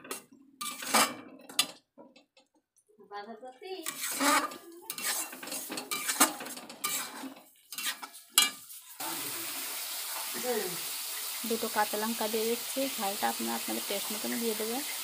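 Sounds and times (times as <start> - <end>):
metal spatula scraping a pan: 0.0 - 1.6, 3.8 - 11.4.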